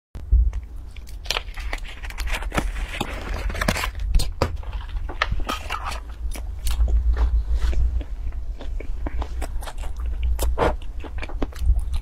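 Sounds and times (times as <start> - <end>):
steady low hum: 0.2 - 12.0
paper wrapper crinkling: 0.9 - 6.2
biting into bread: 7.6 - 12.0.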